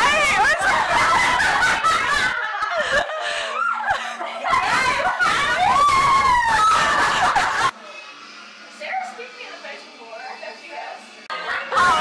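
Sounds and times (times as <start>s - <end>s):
people laughing and exclaiming: 0.0s - 7.8s, 11.3s - 12.0s.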